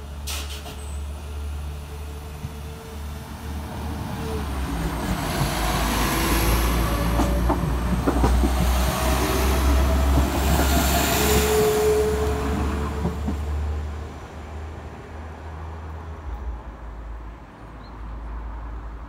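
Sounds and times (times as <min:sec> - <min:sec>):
diesel train passing: 0:00.0 - 0:19.0
wheels clacking over rail joints: 0:04.7 - 0:11.8.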